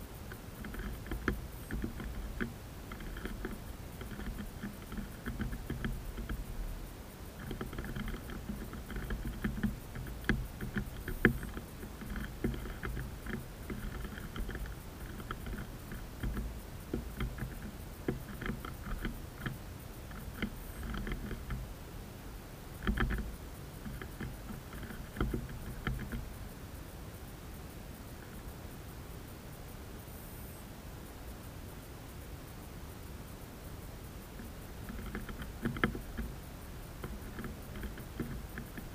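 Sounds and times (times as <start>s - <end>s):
low background rumble: 0.0s - 30.3s
bird pecking on wooden tray: 0.2s - 21.7s, 22.8s - 26.4s, 34.3s - 38.9s.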